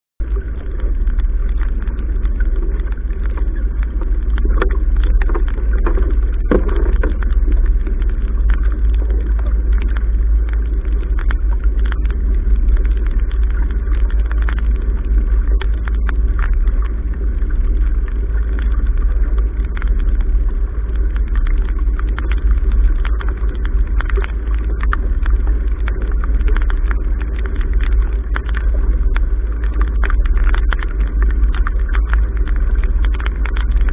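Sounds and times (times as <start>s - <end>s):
water rushing along hull: 0.2s - 33.9s
small ticks: 0.3s - 33.9s.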